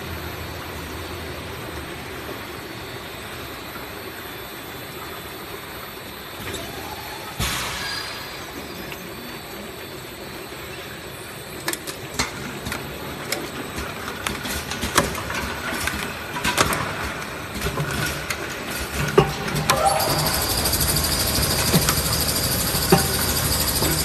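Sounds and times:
machine mechanical hum: 0.0s - 24.0s
sharp machine clicks and knocks: 13.8s - 24.0s.

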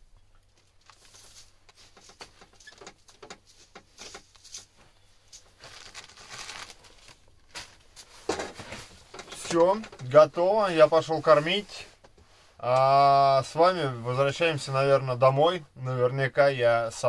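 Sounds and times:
rustling grain: 0.5s - 12.6s.

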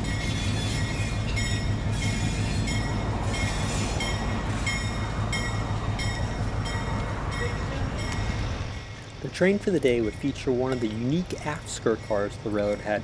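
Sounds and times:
locomotive bell ringing: 0.0s - 13.0s
locomotive engine rumbling: 0.0s - 13.0s.

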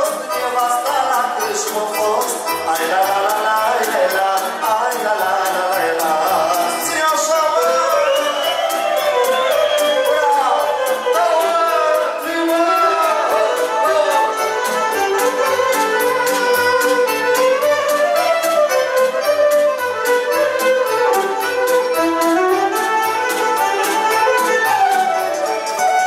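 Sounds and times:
violin melody: 0.0s - 26.0s
saxophone: 7.9s - 26.0s.

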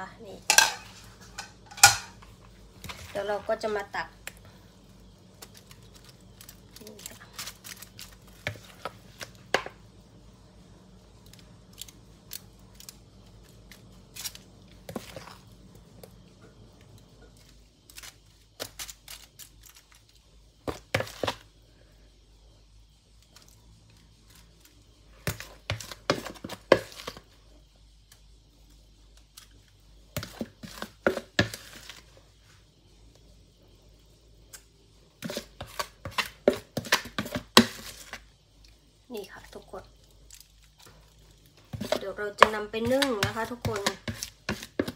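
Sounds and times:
spoon scraping foil cups: 0.5s - 3.8s, 41.7s - 44.9s
foil crinkling: 5.3s - 9.3s.

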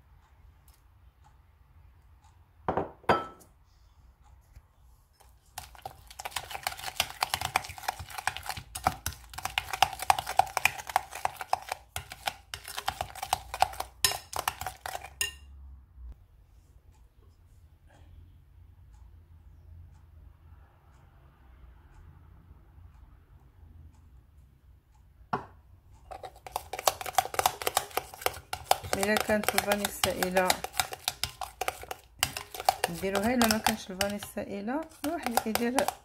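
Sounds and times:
spoon clinking in ceramic bowl: 14.0s - 15.5s.

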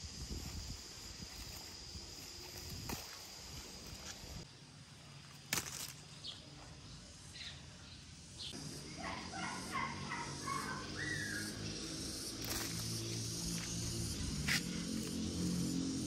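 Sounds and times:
fruit snapping off stalk: 5.5s - 6.0s
faint bird chirps: 6.2s - 11.8s.

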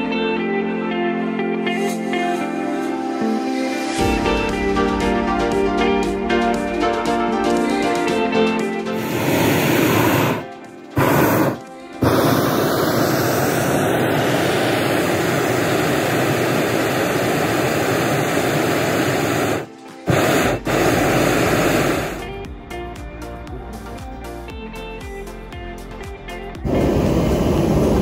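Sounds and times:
propane burner roaring: 9.0s - 22.4s, 26.6s - 28.0s.

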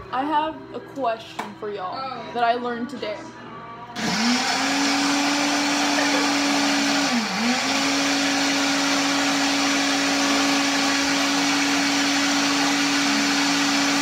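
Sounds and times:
electric blender running: 4.0s - 14.0s.

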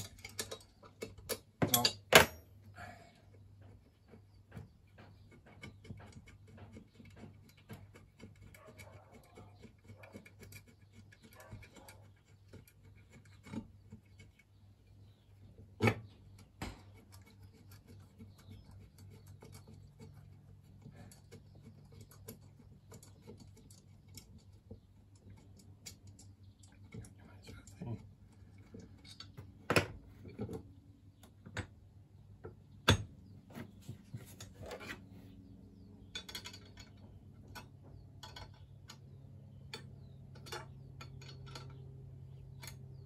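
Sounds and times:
metal scrapes and taps: 32.4s - 35.1s.

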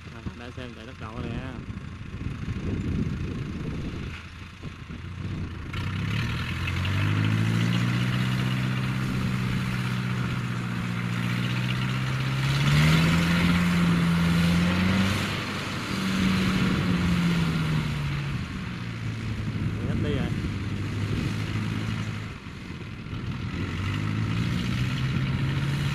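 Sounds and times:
engine running under load: 0.0s - 25.9s.

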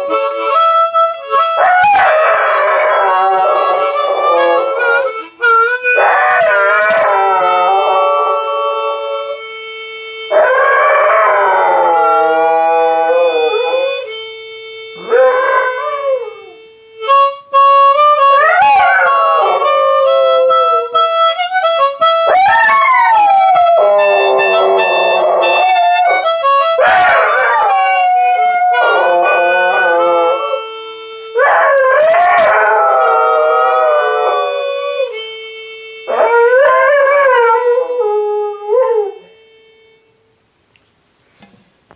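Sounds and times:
harmonica notes and chords: 0.0s - 40.9s
dog howling: 1.6s - 5.1s, 6.0s - 9.3s, 10.3s - 14.1s, 15.0s - 16.6s, 18.4s - 20.9s, 22.3s - 30.7s, 31.4s - 35.2s.

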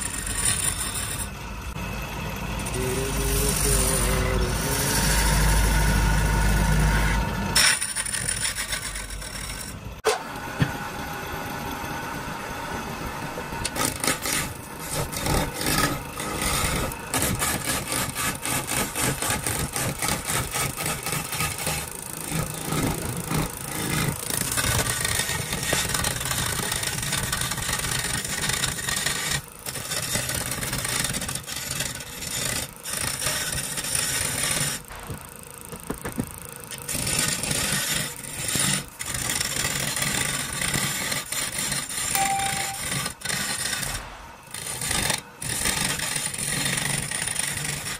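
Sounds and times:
gouge rasping on spinning wood: 0.0s - 1.7s, 2.5s - 9.8s, 13.6s - 35.0s, 36.7s - 47.9s.

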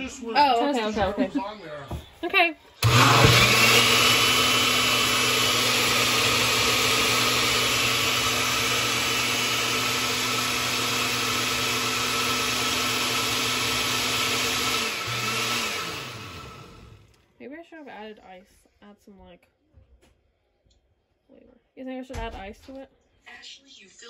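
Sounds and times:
motor winding down: 2.8s - 17.1s
blender running: 2.8s - 17.2s.

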